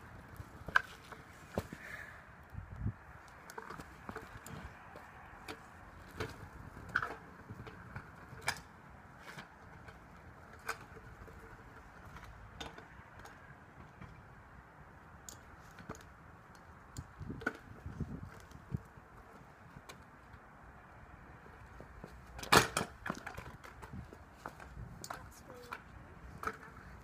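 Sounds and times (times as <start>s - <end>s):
kick scooter clacking on tarmac: 0.0s - 2.0s, 2.7s - 14.4s, 15.2s - 20.4s, 21.3s - 27.0s.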